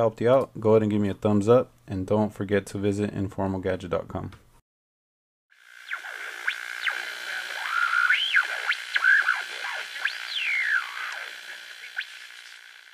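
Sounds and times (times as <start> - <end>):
synthesizer tone with pitch sweeps: 5.6 - 12.9.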